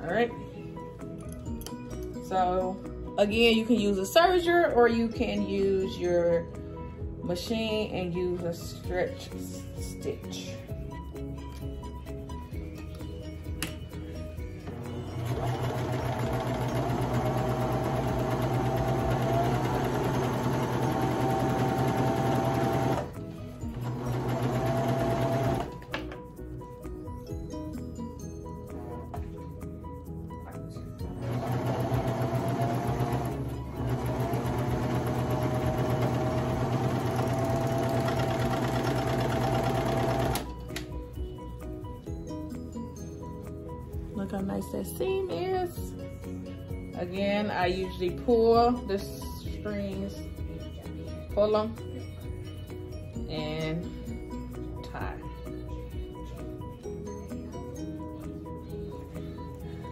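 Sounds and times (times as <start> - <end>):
light background music: 0.0 - 59.9
serger sewing machine running: 15.2 - 23.1, 23.8 - 25.7, 31.2 - 40.4.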